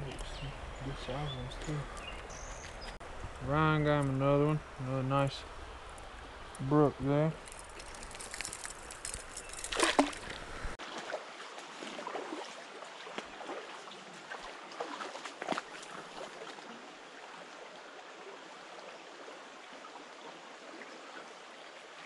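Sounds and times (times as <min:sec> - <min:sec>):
creek water rushing: 0:00.0 - 0:22.0
small splashes: 0:07.4 - 0:17.6.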